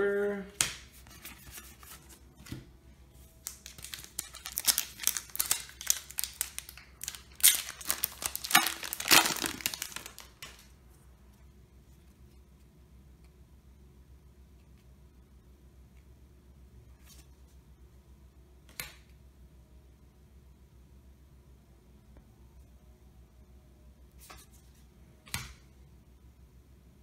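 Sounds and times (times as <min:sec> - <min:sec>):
foil wrapper crinkling and tearing: 0:03.4 - 0:10.7.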